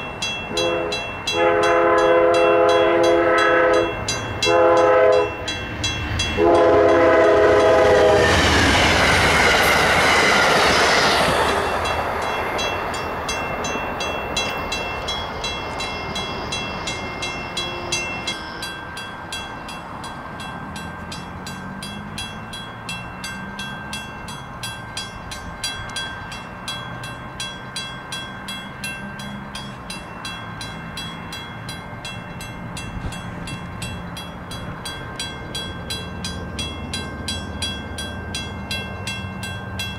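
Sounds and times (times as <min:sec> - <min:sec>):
crossing bell dinging: 0:00.0 - 0:39.9
train passing with loud rush: 0:00.0 - 0:39.9
train air horn chord: 0:00.5 - 0:05.4, 0:06.4 - 0:08.5.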